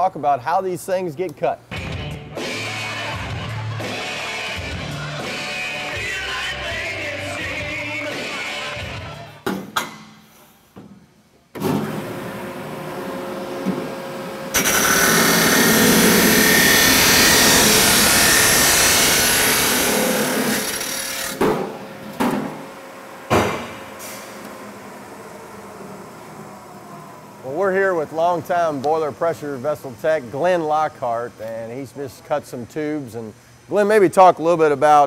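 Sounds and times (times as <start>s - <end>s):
chop saw cutting steel tube: 14.5s - 21.5s
sharp knocks: 23.3s - 23.8s.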